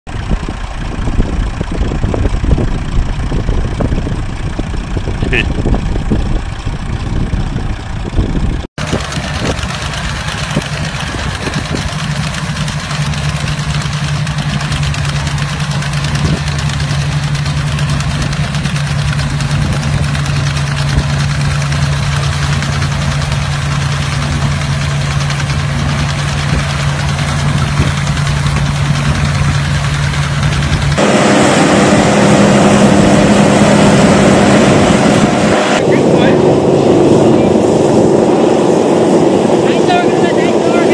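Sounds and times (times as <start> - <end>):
tractor engine idling: 0.1 - 40.9.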